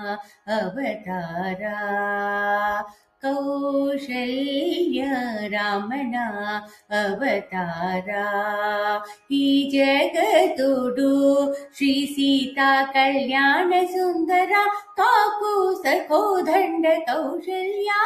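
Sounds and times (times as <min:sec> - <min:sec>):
woman singing unaccompanied: 0:00.0 - 0:18.0.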